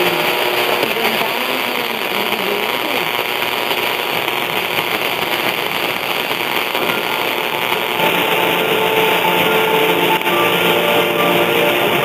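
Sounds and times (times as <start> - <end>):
radio static hiss: 0.0 - 12.0
faint radio music: 6.6 - 12.0.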